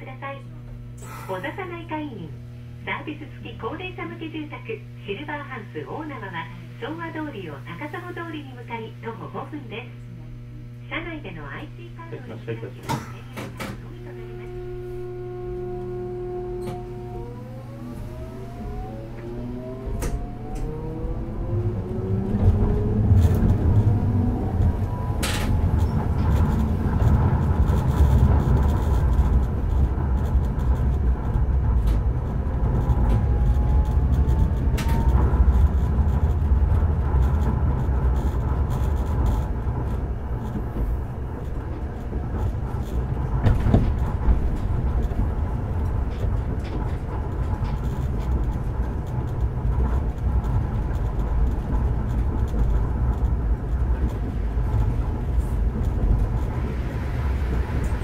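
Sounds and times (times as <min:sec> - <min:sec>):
tram inverter tones rising: 0:10.4 - 0:58.0
wheel and track rumble: 0:12.8 - 0:58.0.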